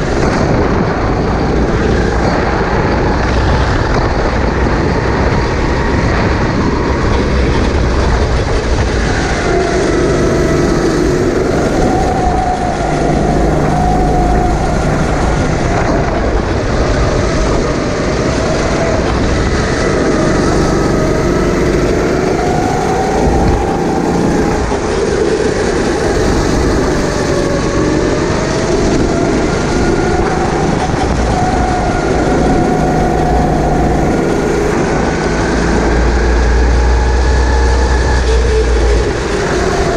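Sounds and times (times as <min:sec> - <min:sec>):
racing kart engine: 0:00.0 - 0:39.9.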